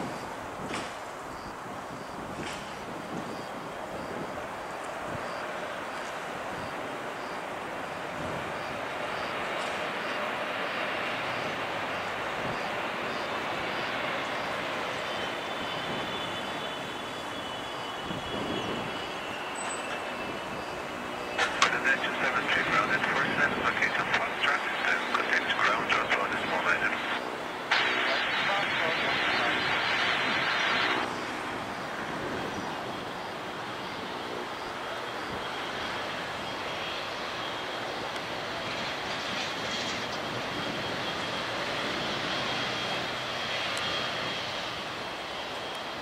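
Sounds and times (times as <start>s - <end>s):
jet engines rushing with whine: 0.0s - 46.0s.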